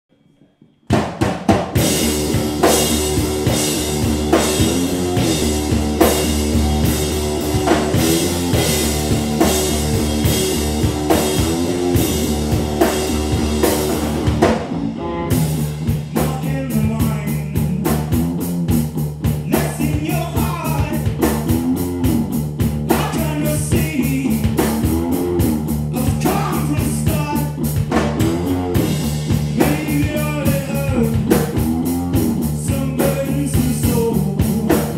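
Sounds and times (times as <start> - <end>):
rock band playing: 0.9 - 34.9
heavy cymbals: 1.8 - 14.5
man singing: 16.0 - 18.2, 19.4 - 21.3, 22.9 - 25.0, 25.9 - 28.9, 29.5 - 34.9.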